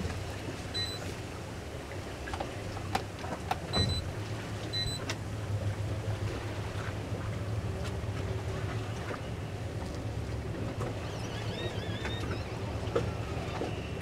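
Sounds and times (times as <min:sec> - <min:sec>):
boat engine running: 0:00.0 - 0:14.0
water noise: 0:00.0 - 0:14.0
short high beeps: 0:00.8 - 0:01.0.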